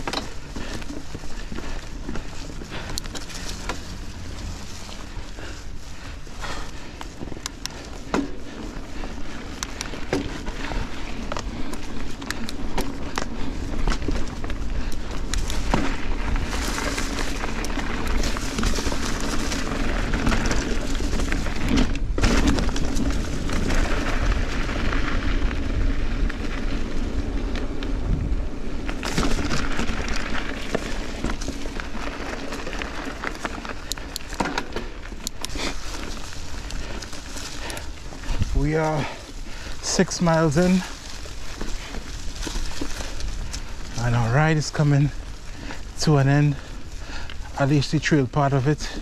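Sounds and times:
bike knocks and rattles: 0.0s - 25.2s, 28.8s - 38.5s
bike tyre noise: 0.0s - 49.0s
wind over microphone: 0.0s - 49.0s.

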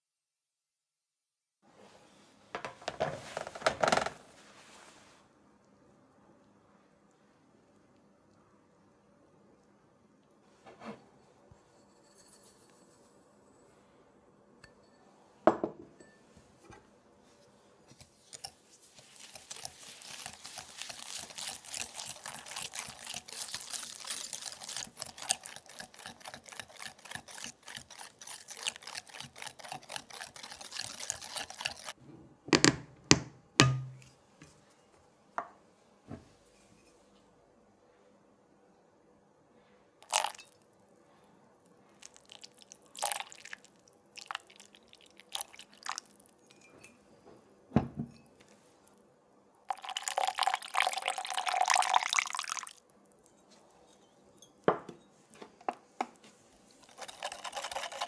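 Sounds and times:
whisk scraping in glass bowl: 18.2s - 32.0s, 56.8s - 58.0s.

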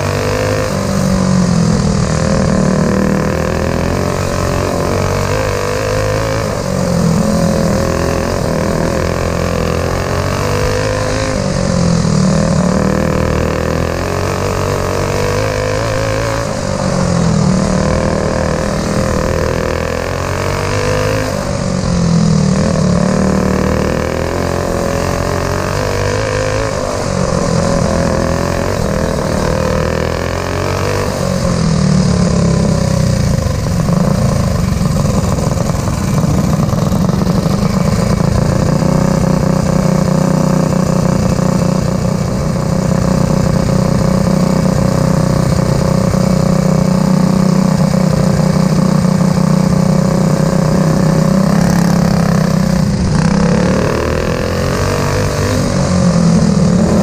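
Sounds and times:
racing kart engine: 0.0s - 57.0s.

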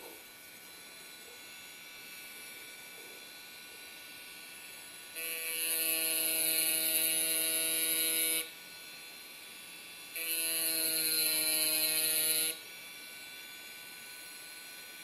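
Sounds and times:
rotary tool motor buzz: 0.0s - 15.0s.

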